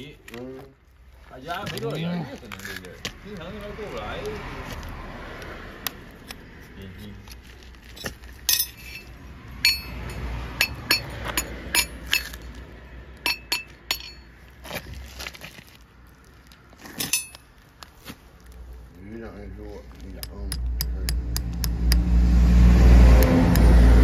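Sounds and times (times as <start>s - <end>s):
metal tools clinking on horseshoe: 7.9s - 12.5s, 13.2s - 14.4s, 16.9s - 17.5s.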